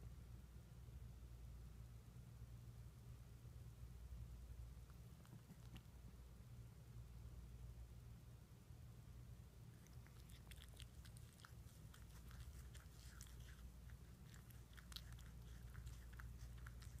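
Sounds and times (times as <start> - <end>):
low steady hum: 0.0 - 17.0
cat tongue licking: 9.7 - 17.0.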